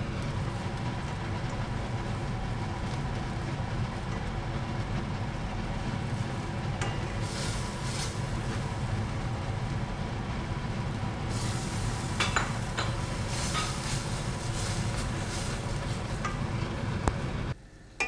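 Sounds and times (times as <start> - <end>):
meat sizzling in oil: 7.1 - 9.0, 11.3 - 16.2.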